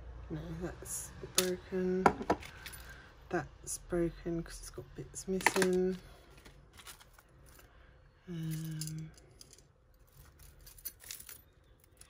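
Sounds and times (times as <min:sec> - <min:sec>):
jewellery clicking and rattling: 0:01.3 - 0:03.0, 0:05.3 - 0:12.0
person humming: 0:08.3 - 0:09.2.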